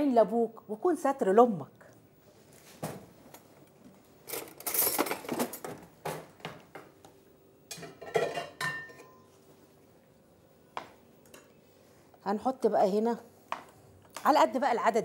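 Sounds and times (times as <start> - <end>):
dishes clinking and clattering: 7.7 - 9.3.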